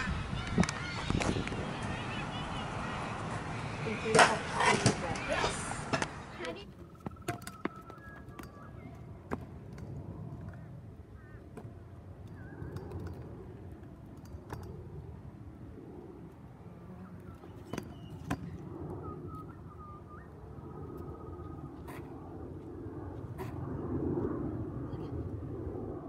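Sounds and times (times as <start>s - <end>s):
scooter wheels rolling on asphalt: 0.0s - 18.6s
scooter deck clacking on ground: 4.0s - 10.0s
small birds chirping: 17.0s - 21.7s.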